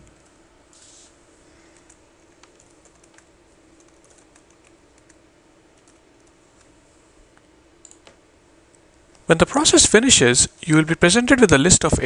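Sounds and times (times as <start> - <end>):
faint steady hum: 0.0 - 12.0
computer keyboard typing: 1.8 - 5.2, 5.8 - 6.4.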